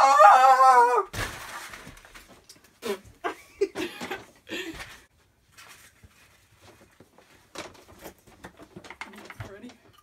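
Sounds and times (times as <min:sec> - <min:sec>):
girls laughing: 0:03.2 - 0:04.7.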